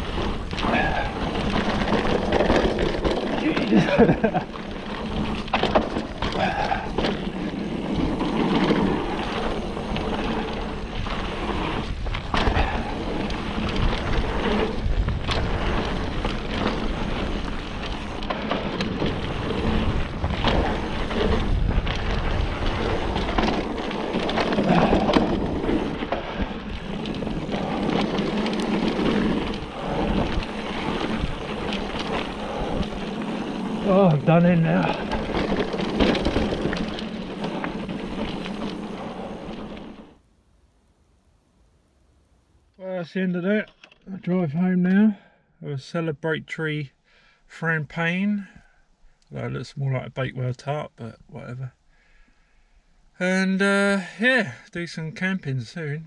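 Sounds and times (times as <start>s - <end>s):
bike clicks and rattles: 0.0s - 40.2s, 43.6s - 44.1s
tyres rumbling over dirt: 0.0s - 40.2s
wind buffeting microphone: 6.1s - 39.8s.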